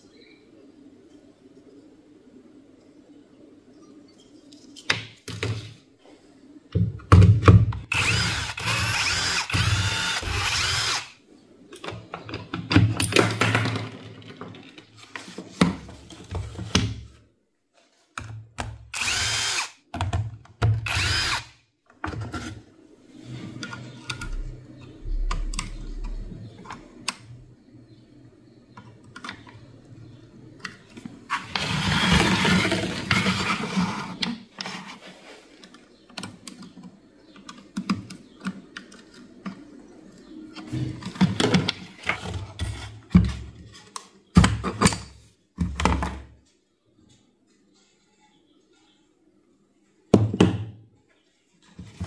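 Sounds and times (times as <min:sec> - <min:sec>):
clicks and handling noise: 0:04.4 - 0:05.8, 0:28.7 - 0:49.0
electric power tool motor running: 0:07.9 - 0:11.1, 0:19.0 - 0:19.7, 0:20.9 - 0:21.5.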